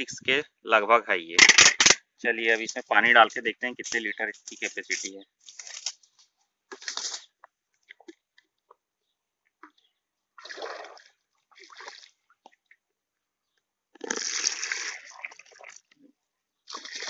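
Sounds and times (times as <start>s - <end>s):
water pouring from jug: 10.4s - 12.1s, 14.0s - 15.9s, 16.7s - 17.0s.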